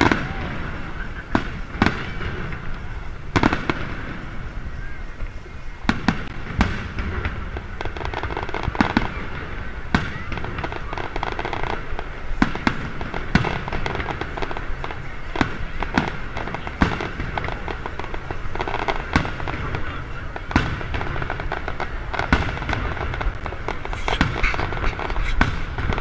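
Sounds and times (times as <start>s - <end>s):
firework crackling: 0.0s - 26.0s
firework shells bursting: 20.5s - 26.0s.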